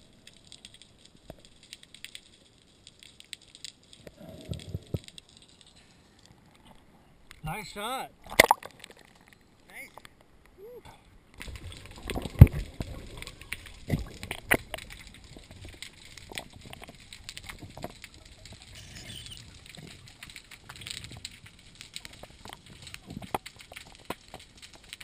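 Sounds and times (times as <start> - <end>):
water sloshing and gurgling: 0.0 - 25.0
underwater clicks: 0.2 - 6.6, 8.2 - 10.6, 11.3 - 25.0.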